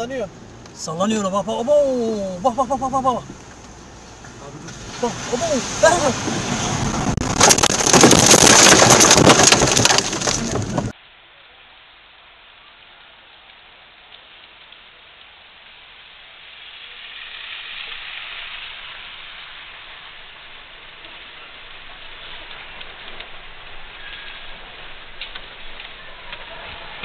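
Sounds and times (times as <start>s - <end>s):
faint steady hiss: 0.0s - 7.1s, 10.4s - 27.0s
dense crackling and pattering: 2.4s - 11.0s, 20.1s - 27.0s.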